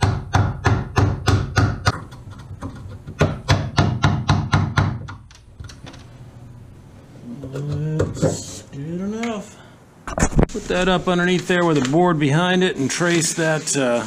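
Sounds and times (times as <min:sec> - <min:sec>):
hammer striking wood chisel: 0:00.0 - 0:02.0, 0:03.2 - 0:05.2.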